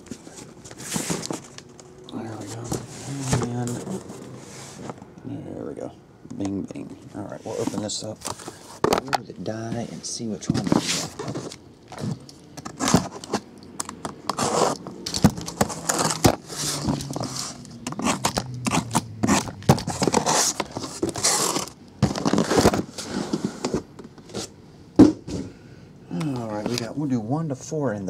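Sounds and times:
cardboard flaps scraping: 0.0s - 1.6s, 9.7s - 13.5s, 14.2s - 24.5s
boxes clicking and knocking: 7.6s - 25.5s
packing tape tearing: 10.7s - 23.1s.

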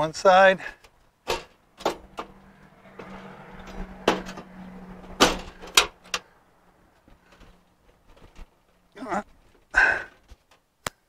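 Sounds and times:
metallic knocks and bangs: 1.2s - 6.3s.

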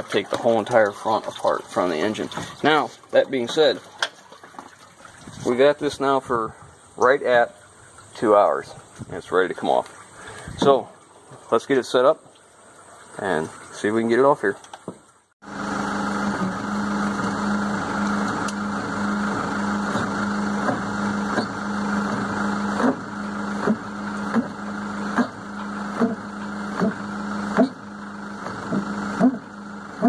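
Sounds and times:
engine idling: 15.4s - 30.0s
short rising squeaks: 19.2s - 30.0s.

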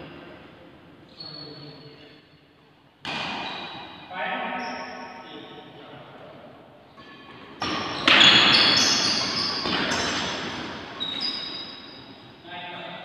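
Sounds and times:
rackets hitting shuttlecock: 3.0s - 4.0s, 7.0s - 11.0s
shoes squeaking on court: 3.3s - 4.0s, 6.9s - 12.3s.

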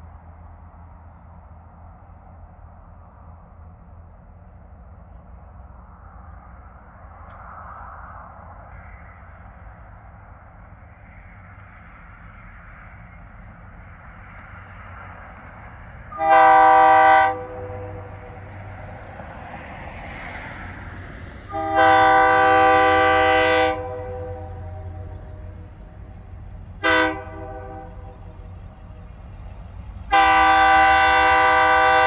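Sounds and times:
steady low rumble: 0.0s - 21.6s, 23.7s - 31.6s
locomotive air horn blast: 16.1s - 18.4s, 21.5s - 25.7s, 26.8s - 28.2s, 30.1s - 32.0s.

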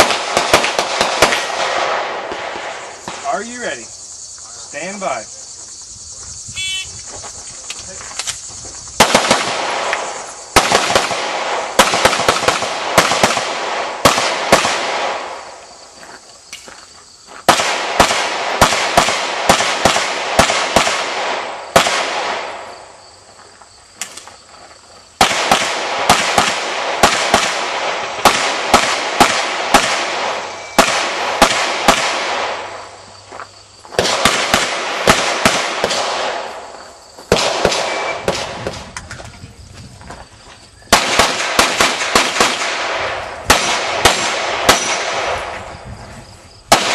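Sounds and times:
pistol shots: 0.0s - 3.3s, 9.0s - 15.5s, 17.5s - 22.7s, 25.2s - 32.8s, 34.0s - 36.6s, 37.3s - 38.8s, 40.9s - 45.6s, 46.7s - 46.9s.

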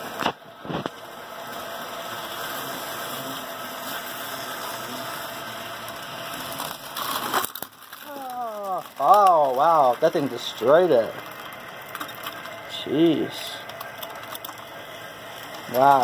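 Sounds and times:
model train motor whir: 0.0s - 16.0s
model train crash clatter: 6.5s - 8.0s.

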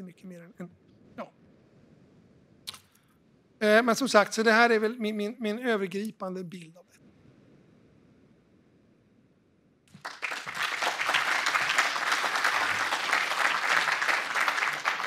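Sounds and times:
audience applause: 9.9s - 15.0s.

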